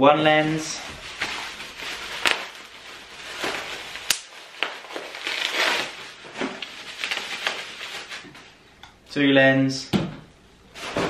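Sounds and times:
bubble wrap crinkling: 0.3 - 8.6
sharp crackles: 1.2 - 8.2.

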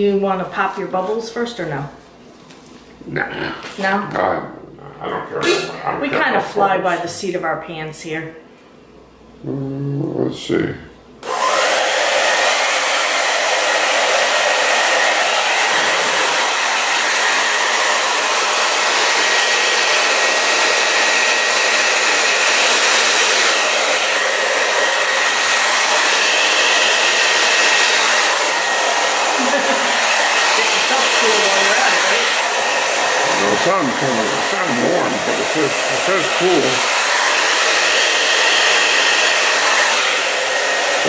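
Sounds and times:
hair dryer blowing air: 11.2 - 41.0.

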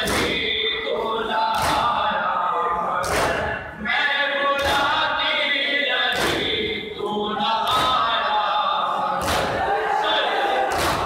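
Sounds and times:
chest beating slaps: 0.0 - 0.4, 3.0 - 3.6, 6.1 - 6.6, 9.2 - 9.7, 10.7 - 11.0
crowd chanting: 0.0 - 11.0.

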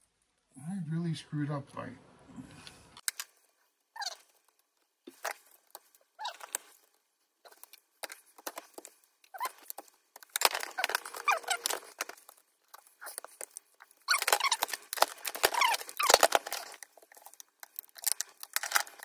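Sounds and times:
plastic case creaking and squeaking: 3.9 - 19.0.

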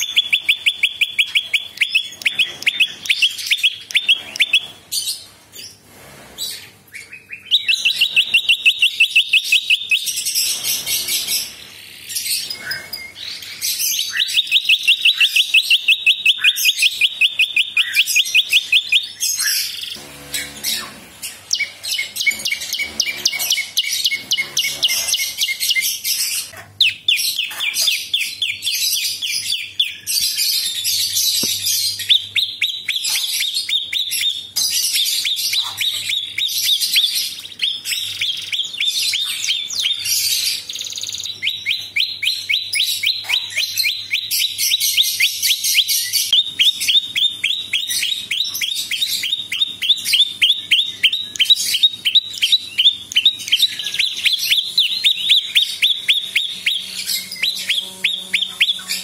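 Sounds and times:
buzzy bird trills: 6.6 - 26.6, 45.6 - 59.0
songbird chipping notes: 14.0 - 28.2, 45.4 - 59.0.

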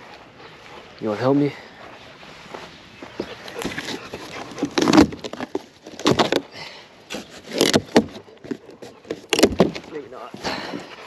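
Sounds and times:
cardboard box scraping and rustling: 3.3 - 6.5, 7.1 - 10.9.

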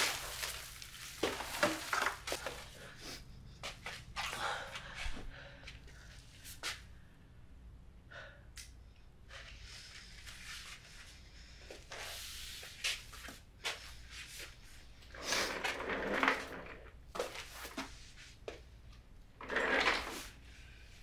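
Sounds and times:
rustling and scraping: 0.0 - 4.4, 9.6 - 18.7, 19.4 - 20.9.

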